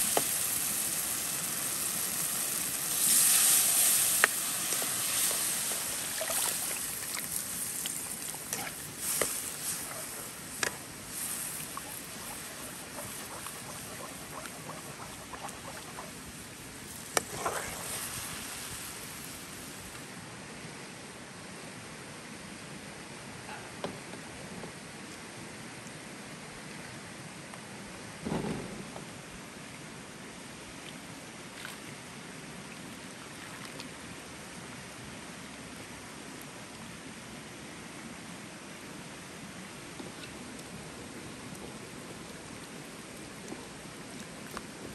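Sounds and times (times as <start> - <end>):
sauce hissing: 0.0 - 16.2
background hiss: 0.0 - 44.9
ladle swishing out: 2.9 - 16.4, 17.0 - 18.4.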